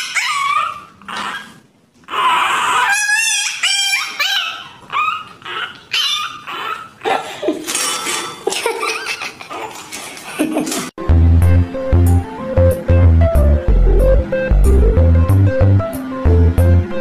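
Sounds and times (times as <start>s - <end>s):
puppy yelping and whining: 0.0s - 8.0s, 8.7s - 10.0s
music with heavy bass beat: 11.0s - 17.0s.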